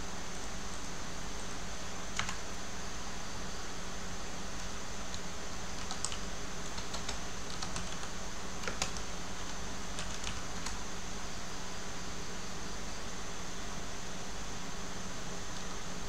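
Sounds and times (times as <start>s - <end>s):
steady background hiss: 0.0s - 16.0s
keyboard typing: 2.1s - 2.5s, 5.1s - 10.8s.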